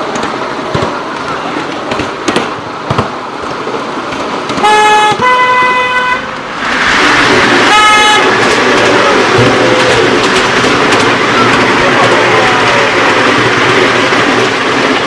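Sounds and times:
train running noise echoing: 0.0s - 15.0s
steam train whistle tooting: 4.6s - 6.3s, 7.7s - 8.3s.

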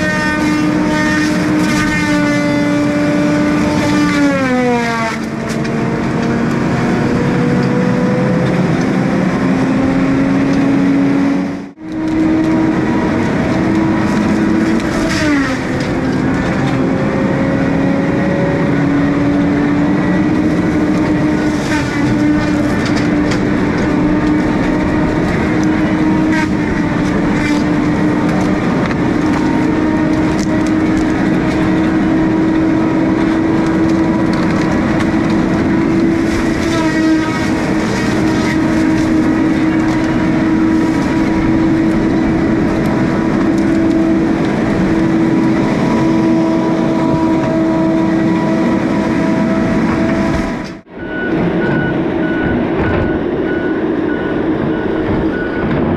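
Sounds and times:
whining machine drone: 0.0s - 55.9s.

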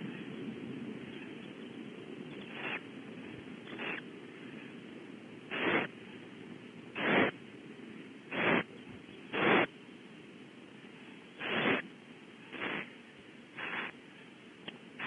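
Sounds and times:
owlets hissing: 2.4s - 2.8s, 3.7s - 4.0s, 5.5s - 6.0s, 6.9s - 7.4s, 8.3s - 8.7s, 9.3s - 9.7s, 11.4s - 13.0s, 13.6s - 14.0s.

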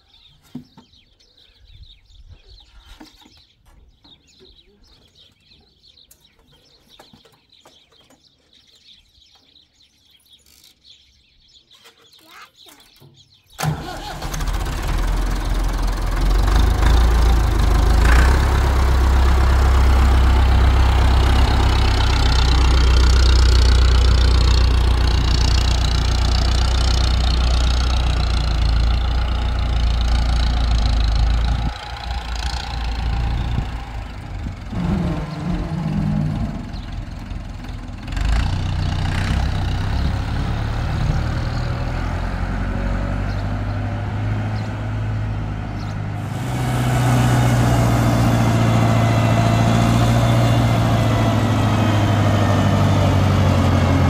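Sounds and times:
tractor diesel engine running: 13.6s - 54.0s.

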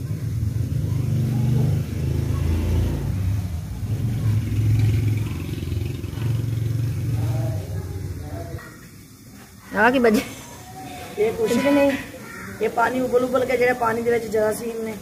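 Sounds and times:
engine rumbling: 0.0s - 9.3s.

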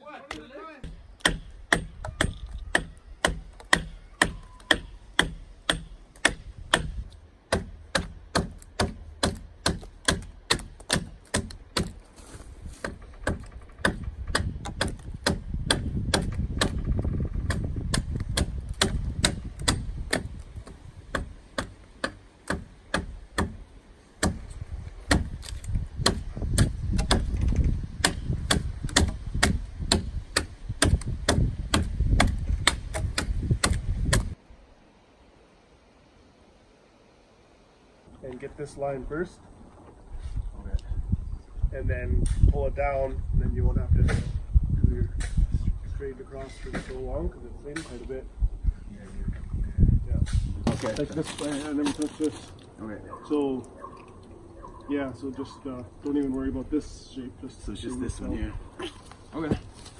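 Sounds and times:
adze chopping wood: 0.3s - 12.1s, 12.7s - 23.6s, 24.2s - 34.4s.

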